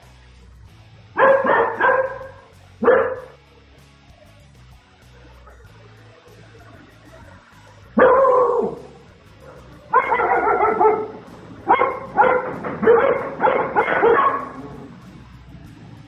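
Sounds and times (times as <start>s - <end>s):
dog barking: 1.2s - 3.4s, 8.0s - 15.0s.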